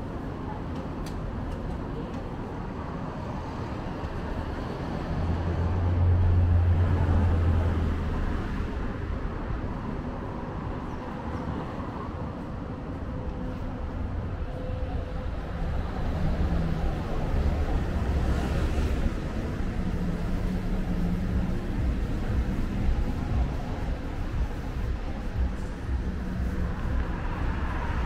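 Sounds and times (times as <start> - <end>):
steady traffic hum: 0.0 - 28.0
vehicle passing with low rumble: 4.2 - 10.2.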